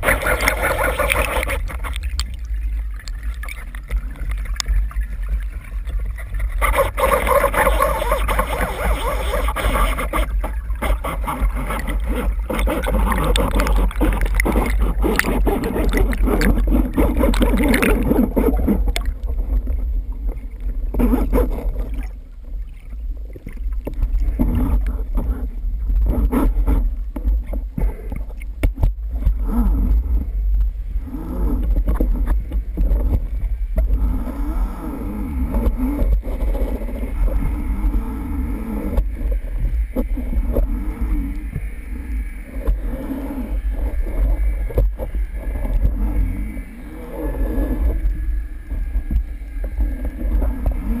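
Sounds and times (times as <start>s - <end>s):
bubbles rushing: 0.0s - 19.4s
underwater water rumble: 0.0s - 51.0s.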